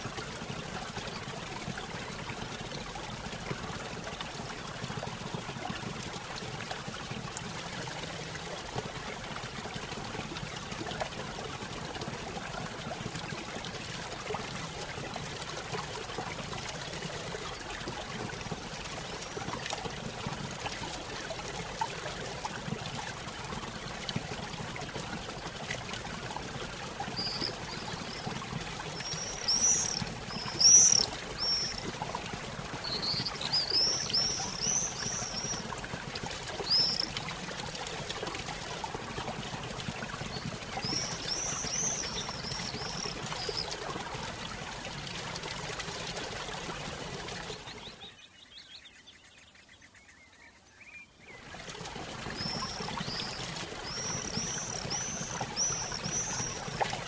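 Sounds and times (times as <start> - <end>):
small birds chirping: 27.0 - 32.0, 32.8 - 35.7, 36.5 - 37.2, 40.3 - 43.7, 52.3 - 56.8.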